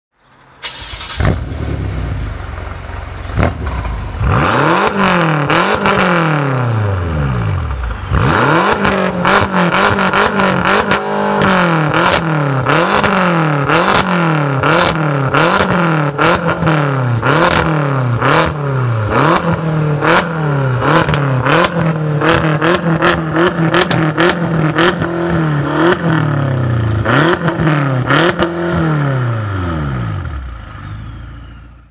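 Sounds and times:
car engine revving: 0.6 - 31.6
exhaust pops and crackles: 23.1 - 25.2.

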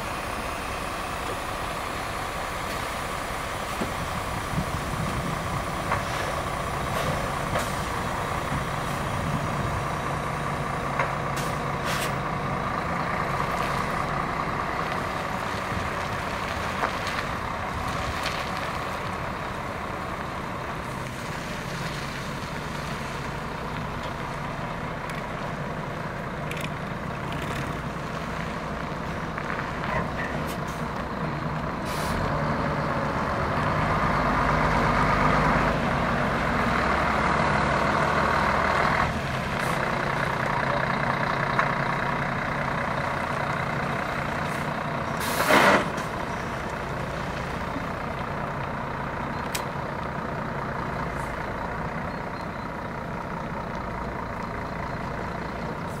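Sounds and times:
diesel engine idling: 0.0 - 56.0
compressed air hiss: 45.2 - 45.8.

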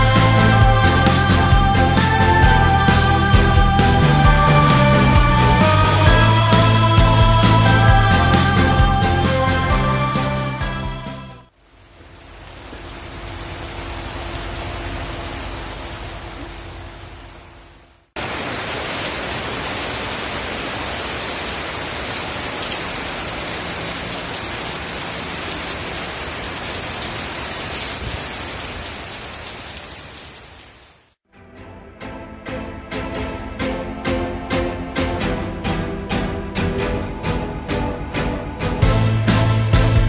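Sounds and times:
heavy rain on pavement: 11.5 - 31.2.

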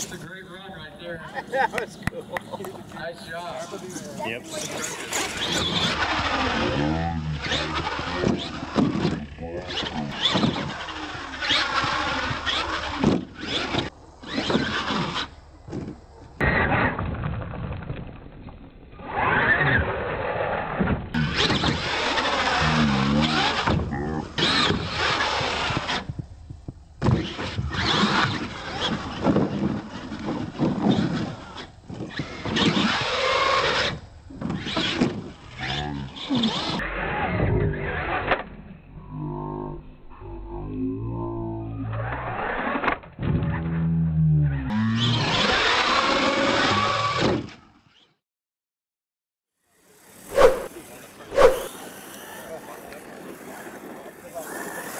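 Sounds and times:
tyres on dirt: 1.6 - 39.6, 42.0 - 48.0, 49.7 - 54.9
toy truck motor revving: 4.5 - 16.0, 19.0 - 26.2, 27.2 - 38.4, 42.0 - 43.0, 44.7 - 48.2, 49.7 - 54.9.

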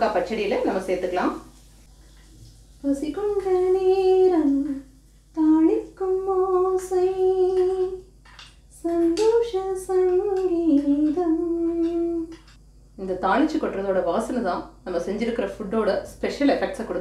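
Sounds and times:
woman humming a tune: 8.8 - 12.4.

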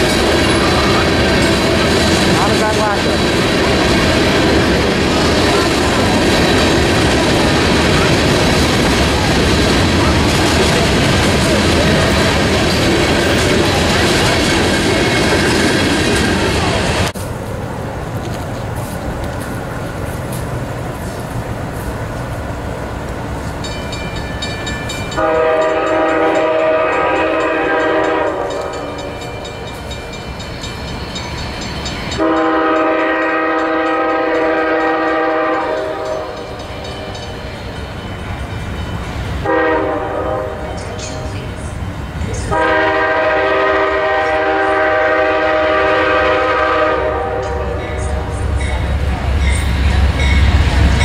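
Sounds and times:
low rumble of train: 0.0 - 51.0
locomotive air horn blasts: 25.2 - 28.9, 32.2 - 36.4, 39.4 - 40.6, 42.5 - 48.3.

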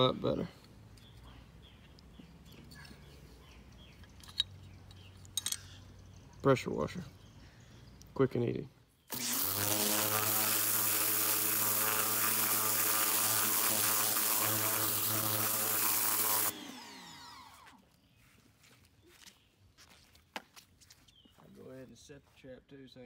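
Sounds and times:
water jet hissing: 9.1 - 16.6
pressure washer pump motor: 9.1 - 17.8.

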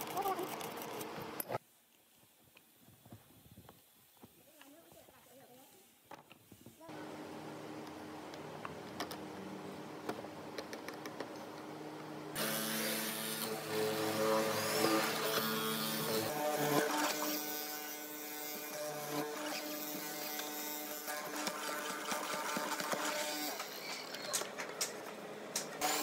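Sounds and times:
chisel boring into wood: 13.4 - 24.3.

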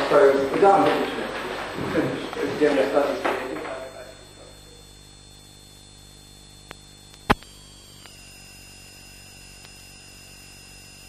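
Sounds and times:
faint high whines: 0.0 - 11.0
low hum and hiss: 0.0 - 11.0
sharp click: 6.7 - 8.2.

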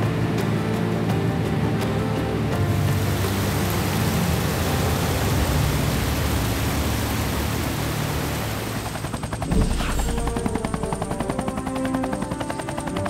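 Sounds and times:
rushing river water: 0.0 - 9.4
rapid even pulsing: 3.4 - 13.0
whoosh: 9.5 - 10.6.

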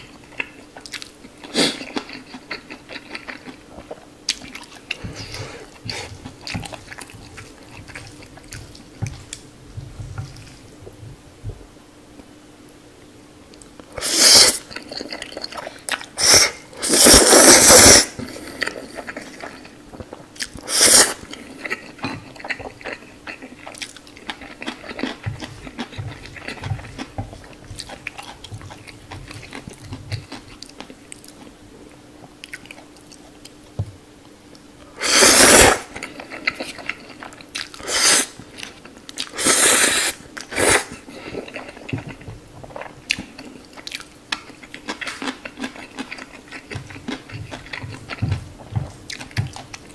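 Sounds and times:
wet chewing and smacking: 0.0 - 11.2, 14.6 - 16.4, 18.2 - 31.6, 32.2 - 33.7, 35.9 - 39.4, 40.3 - 49.9
noodles being slurped: 14.0 - 21.9, 35.0 - 36.8.

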